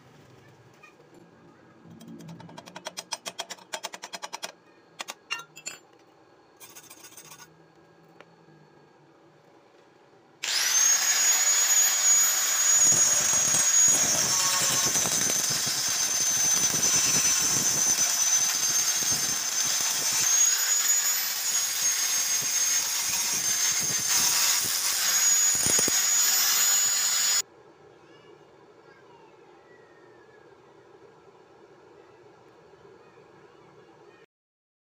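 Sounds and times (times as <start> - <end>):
angle grinder grinding metal: 10.4 - 27.4.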